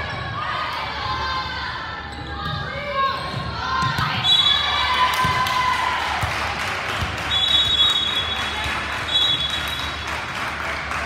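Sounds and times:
referee's whistle blasts: 0:04.2 - 0:04.9, 0:07.3 - 0:10.0.

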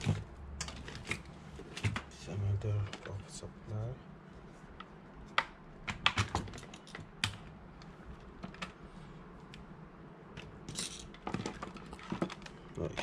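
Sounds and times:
plastic plugs and cables clattering: 0:00.0 - 0:03.4, 0:04.8 - 0:08.8, 0:10.4 - 0:13.0.

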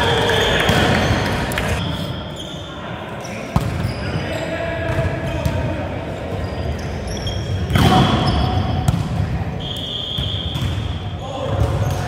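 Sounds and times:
sneakers squeaking on wooden floor: 0:00.0 - 0:04.5, 0:06.3 - 0:08.9.

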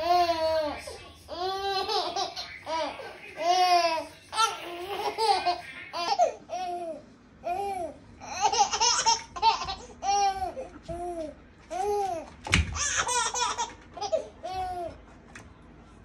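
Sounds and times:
baby laughing and babbling: 0:00.0 - 0:15.0.

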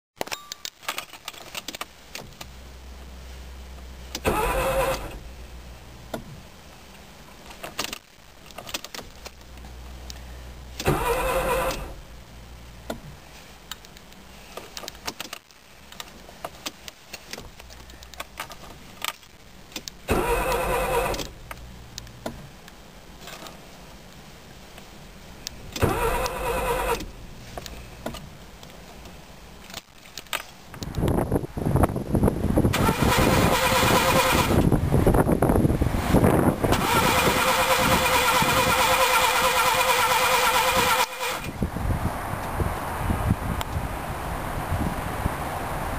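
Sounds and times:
car starter cranking engine: 0:04.1 - 0:06.2, 0:10.7 - 0:12.2, 0:19.8 - 0:22.4, 0:25.7 - 0:28.3, 0:32.7 - 0:34.8, 0:36.7 - 0:41.6.

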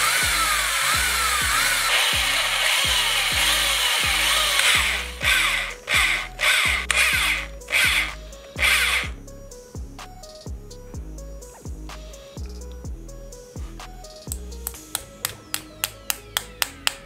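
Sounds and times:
cordless drill drilling wood: 0:00.0 - 0:09.1
music with steady beat: 0:00.0 - 0:17.0.

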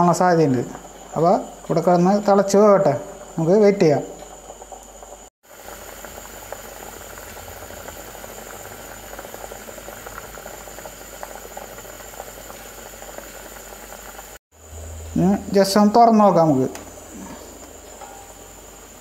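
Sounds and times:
curry bubbling in a pot: 0:00.6 - 0:14.9.

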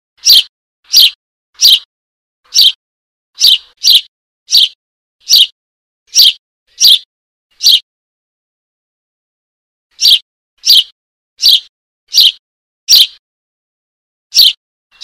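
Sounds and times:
young sparrow begging chirps: 0:00.2 - 0:01.9, 0:02.5 - 0:02.8, 0:03.4 - 0:07.8, 0:09.9 - 0:13.2, 0:14.3 - 0:15.0.

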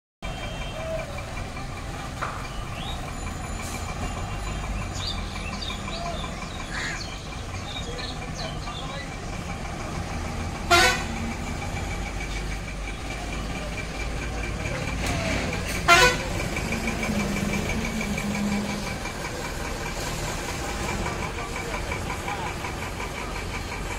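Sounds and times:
bus and truck engines rumbling: 0:00.2 - 0:23.9
vehicle horn blasts: 0:10.7 - 0:11.2, 0:15.8 - 0:16.4.

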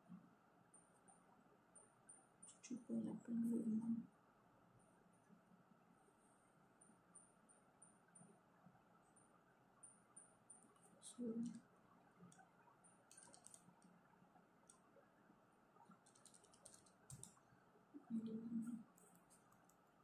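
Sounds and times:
calculator keys clicking: 0:13.1 - 0:13.8, 0:16.0 - 0:17.3.

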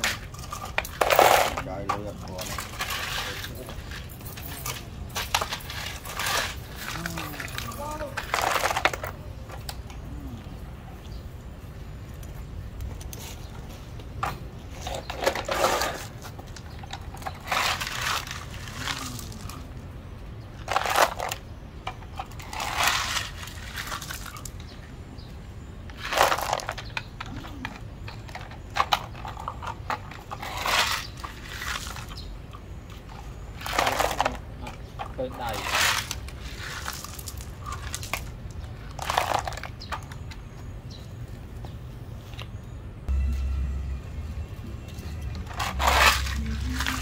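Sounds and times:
gravel rattling and crunching: 0:00.0 - 0:09.9, 0:10.5 - 0:43.3, 0:44.8 - 0:47.0.

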